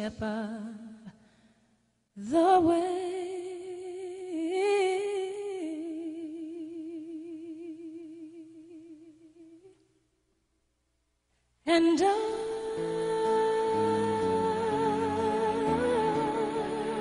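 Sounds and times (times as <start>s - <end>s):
person singing with slow vibrato: 0.0s - 1.6s, 2.2s - 10.0s, 11.6s - 17.0s.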